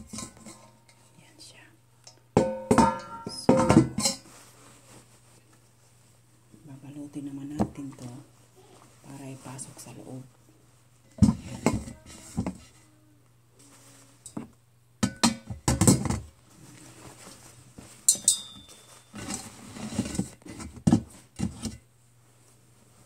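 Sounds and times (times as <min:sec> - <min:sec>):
plastic and cloth rustling: 0:04.0 - 0:06.5, 0:07.4 - 0:13.0, 0:13.6 - 0:14.5, 0:16.0 - 0:23.0
ringing metal clink: 0:18.1 - 0:19.2.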